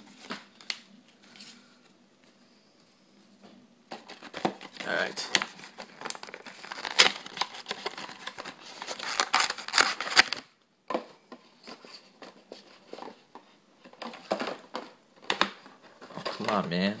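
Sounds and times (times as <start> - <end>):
cardboard box tearing: 6.0 - 10.4.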